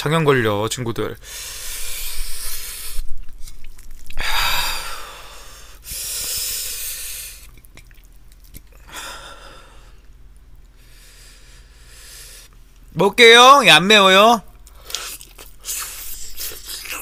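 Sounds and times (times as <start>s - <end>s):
man breathing hard through mouth: 1.2s - 3.1s, 4.1s - 7.5s, 8.8s - 10.1s, 10.8s - 12.5s
wet mouth clicks from chewing: 3.2s - 4.2s, 7.4s - 8.8s.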